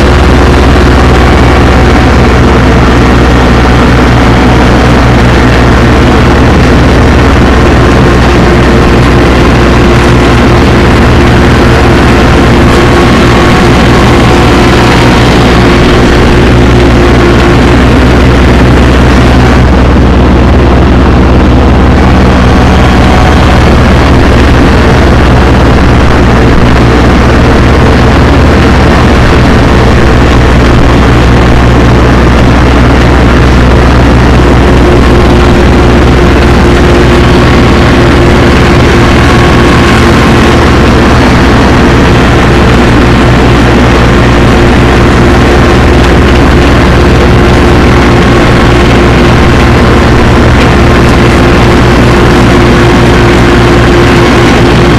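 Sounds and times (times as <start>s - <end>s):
tractor engine droning: 0.0s - 54.9s.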